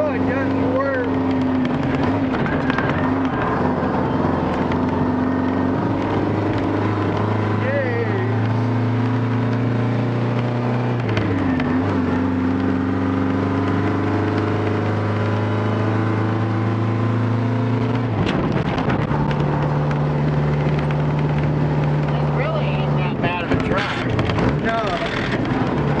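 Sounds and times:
diesel truck engine pulling: 0:00.0 - 0:26.0.

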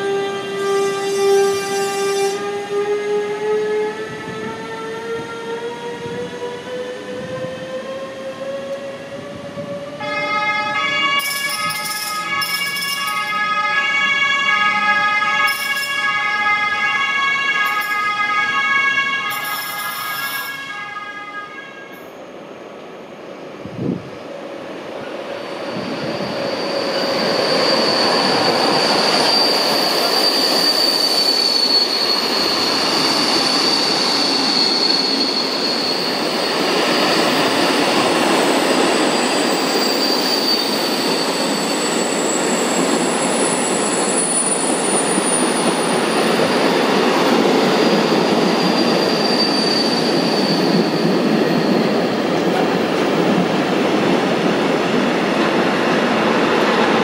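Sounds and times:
train rumbling on rails: 0:00.0 - 0:57.0
high wheel squeal: 0:11.0 - 0:13.5, 0:15.4 - 0:16.2, 0:19.3 - 0:20.6, 0:25.3 - 0:53.0.

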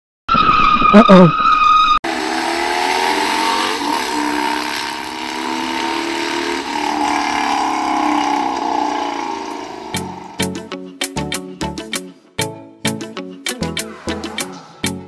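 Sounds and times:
motorcycle engine high revs: 0:02.0 - 0:10.4.

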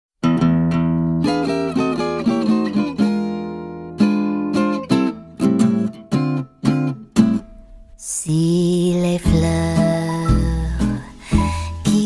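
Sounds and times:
acoustic guitar picking: 0:00.2 - 0:12.0.

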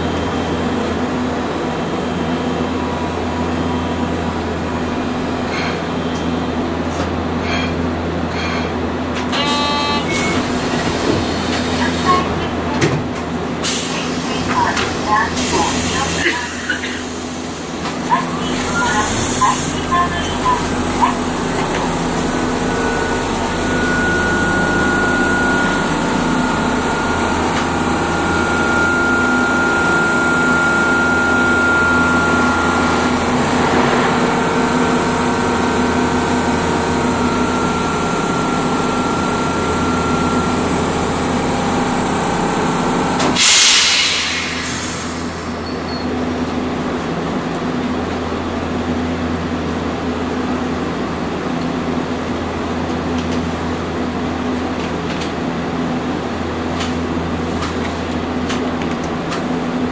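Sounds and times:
tram rumbling on rails: 0:00.0 - 0:59.9
thin high tone: 0:18.4 - 0:33.2.

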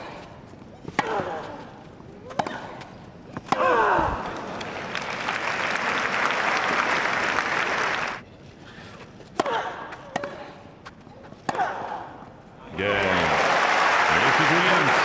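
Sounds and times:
crowd applauding: 0:04.4 - 0:08.2, 0:12.8 - 0:15.0.

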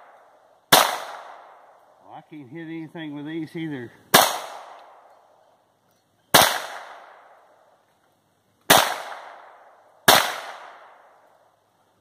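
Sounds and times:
pistol shots with echo: 0:00.0 - 0:01.7, 0:04.1 - 0:05.1, 0:06.3 - 0:07.4, 0:08.7 - 0:11.2.

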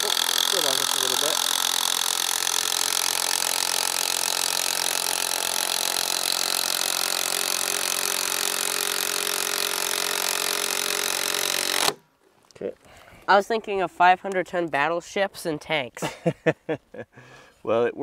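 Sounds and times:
power driver driving screw: 0:00.0 - 0:12.0.

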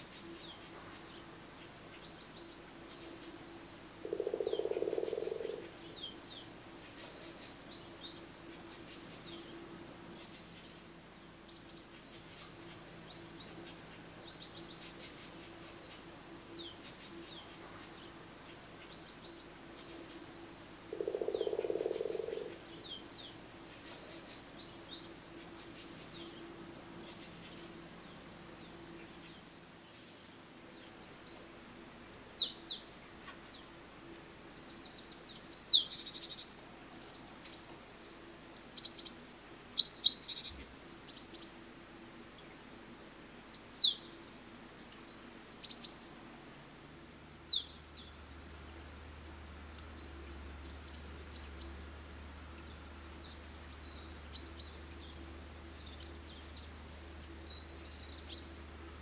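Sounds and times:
faint steady hum: 0:00.0 - 0:59.0
small birds chirping: 0:00.0 - 0:59.0.

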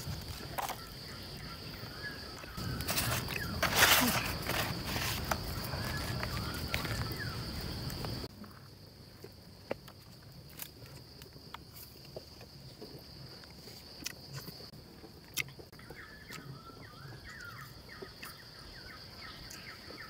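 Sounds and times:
insect drone: 0:00.0 - 0:20.0
rustling leaves and rice: 0:02.3 - 0:08.2.

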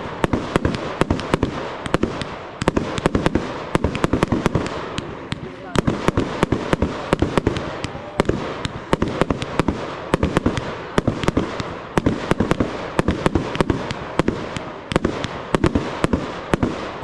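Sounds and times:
firework shells bursting: 0:00.0 - 0:17.0.

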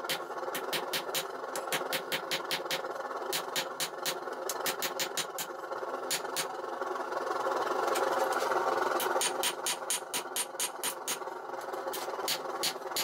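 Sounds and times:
hammer striking metal on anvil: 0:09.0 - 0:11.2.

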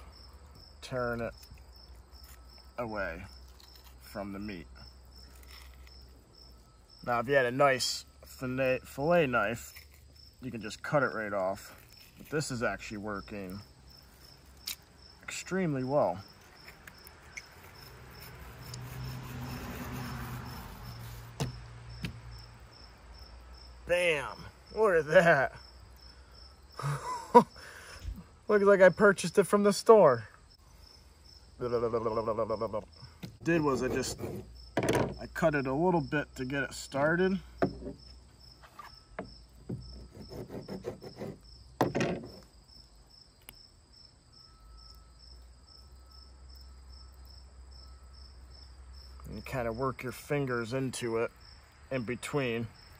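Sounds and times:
crickets chirping: 0:00.0 - 0:52.9
fish skin peeling: 0:03.4 - 0:04.2, 0:05.2 - 0:06.1.

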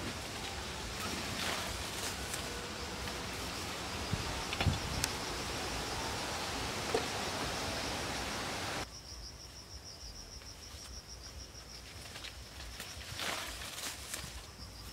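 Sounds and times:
loud even hiss: 0:00.0 - 0:08.8
insects trilling: 0:00.0 - 0:14.9.

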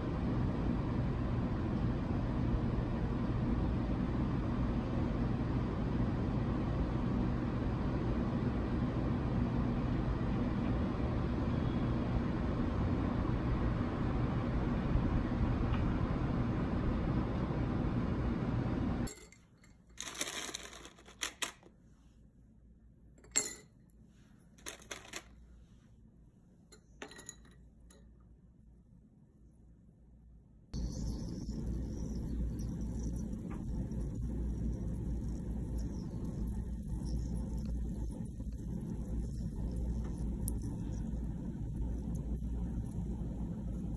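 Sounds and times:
ice cubes clinking in glass: 0:19.1 - 0:21.6, 0:23.2 - 0:23.7, 0:24.6 - 0:25.3, 0:27.0 - 0:27.6
low outdoor rumble: 0:22.3 - 0:43.9.

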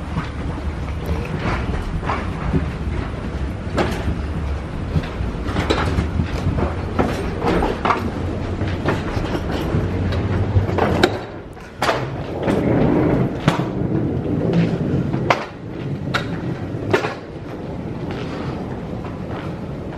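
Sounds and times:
sharp clicks and knocks: 0:00.0 - 0:12.8
footsteps walking: 0:00.0 - 0:19.9
suitcase wheels rumbling: 0:00.0 - 0:19.9.

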